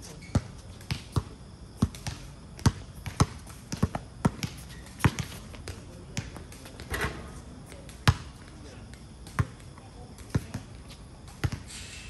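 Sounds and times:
basketball bouncing on court: 0:00.3 - 0:06.4, 0:09.3 - 0:09.6, 0:10.3 - 0:10.6, 0:11.4 - 0:11.6.

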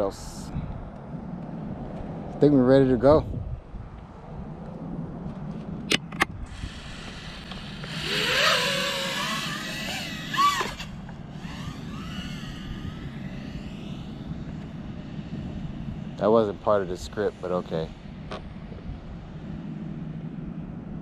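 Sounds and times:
quadcopter motors whining: 0:06.4 - 0:21.0.

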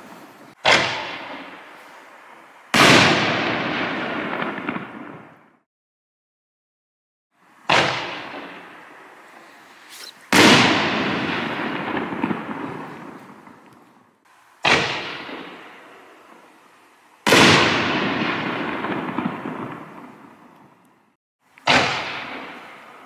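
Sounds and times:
firework crackling tail: 0:00.0 - 0:05.6, 0:07.6 - 0:23.0.

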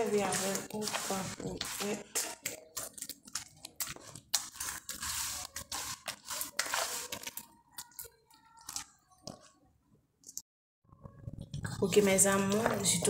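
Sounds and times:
soap mixture scraping in plastic bowl: 0:00.0 - 0:08.0.

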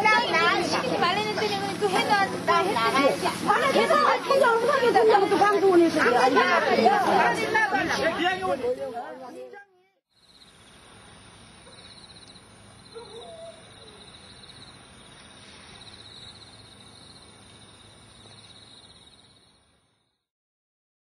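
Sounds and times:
insects trilling: 0:10.1 - 0:20.2.

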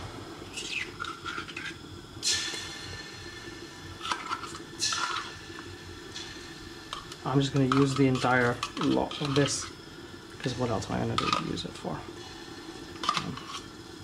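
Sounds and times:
low background hum: 0:00.0 - 0:14.0
utensil scraping and clinking on pot: 0:06.9 - 0:09.8, 0:11.2 - 0:11.5.

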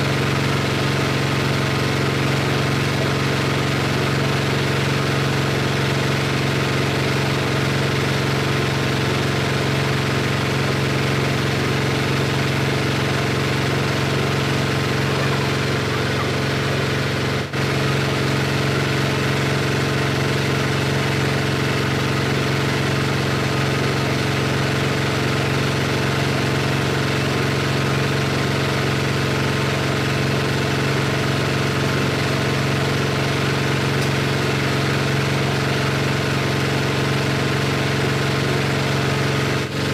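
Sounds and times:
meat grinder motor humming: 0:00.0 - 0:39.9.

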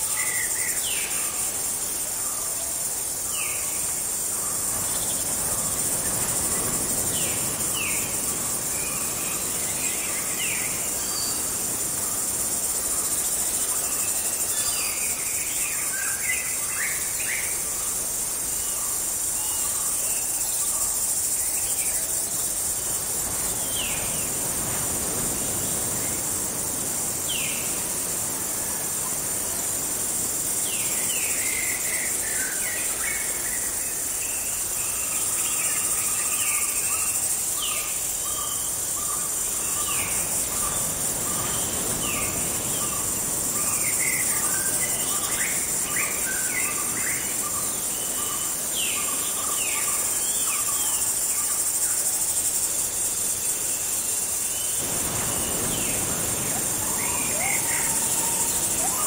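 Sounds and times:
high insect drone: 0:00.0 - 0:59.0
birds whistling: 0:54.8 - 0:59.0.

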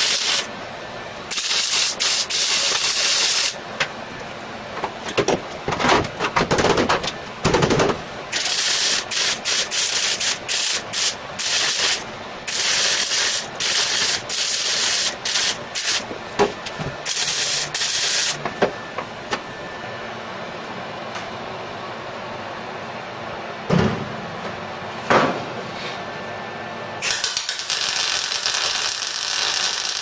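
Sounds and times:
mig welder bursts: 0:00.0 - 0:00.5, 0:01.2 - 0:03.6, 0:07.6 - 0:16.1, 0:17.0 - 0:18.4, 0:27.0 - 0:30.0.

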